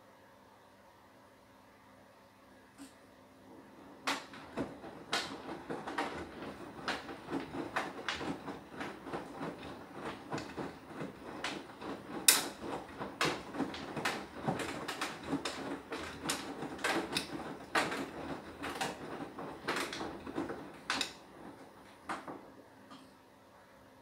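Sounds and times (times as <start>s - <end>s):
washing machine drum clunking: 3.7s - 22.6s.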